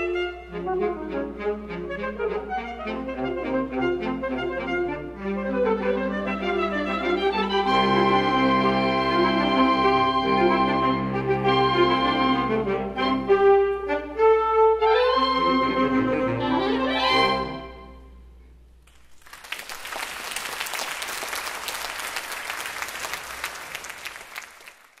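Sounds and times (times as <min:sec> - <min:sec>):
saxophone ensemble playing: 0:00.0 - 0:17.9
audience applauding: 0:18.9 - 0:25.0.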